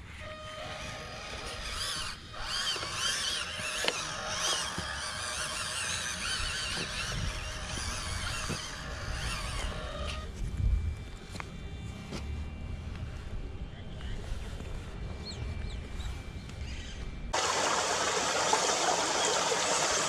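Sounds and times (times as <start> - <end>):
toy truck motor whining: 0.2 - 10.3
birds calling: 15.2 - 20.0.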